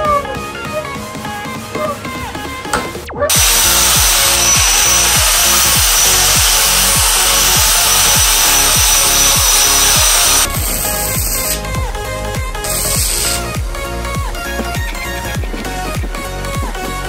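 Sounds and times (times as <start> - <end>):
electronic music with steady beat: 0.0 - 17.0
power tool cutting with high whine: 3.3 - 11.6.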